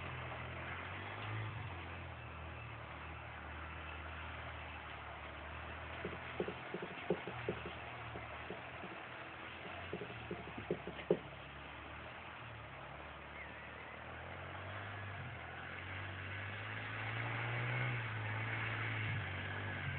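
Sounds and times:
sharp knocks: 0:06.0 - 0:09.0, 0:09.6 - 0:11.3
small engine running: 0:06.0 - 0:11.4.

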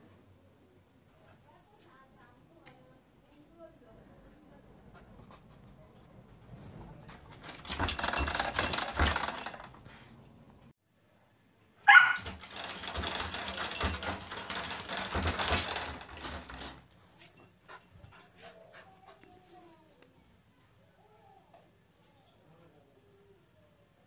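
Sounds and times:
puppy claws scratching wooden door: 0:07.1 - 0:09.9, 0:12.1 - 0:17.0
high-pitched puppy whine: 0:11.9 - 0:13.0.

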